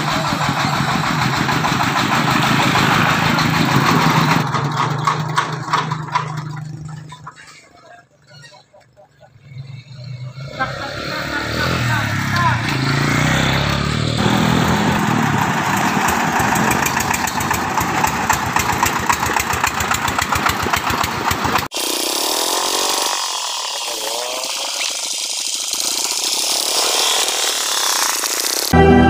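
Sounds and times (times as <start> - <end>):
vehicle engines driving past: 0.0 - 21.5
engine running with less bass: 0.0 - 29.0.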